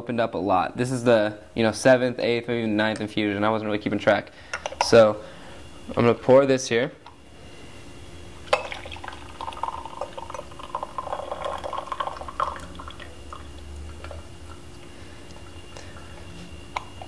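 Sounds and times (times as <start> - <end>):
tea pouring into glass pitcher: 8.5 - 14.6.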